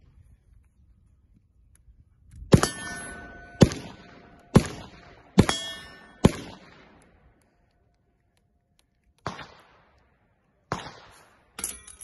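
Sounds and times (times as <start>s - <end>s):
suppressed rifle shots: 2.5s - 7.1s, 9.2s - 10.0s, 10.7s - 11.6s
metallic ring: 2.6s - 4.4s, 5.4s - 6.2s, 11.6s - 12.0s.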